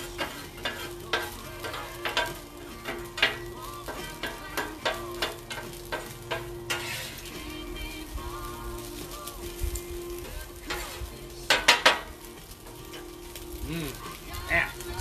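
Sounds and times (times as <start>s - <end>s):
metal spatula scraping steel: 0.0s - 7.6s, 10.6s - 13.2s
meat sizzling on a griddle: 0.0s - 15.0s.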